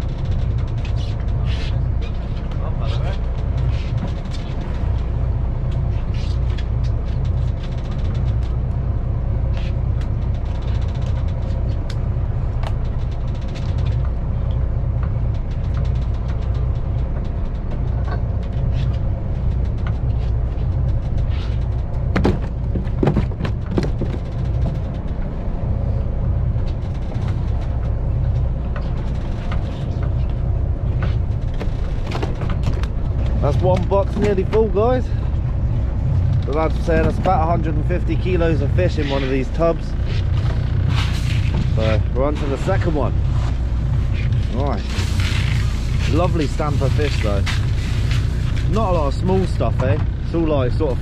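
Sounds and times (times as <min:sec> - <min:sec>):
boat engine rumbling: 0:00.0 - 0:51.0
knocks and clatters on deck: 0:21.4 - 0:25.0.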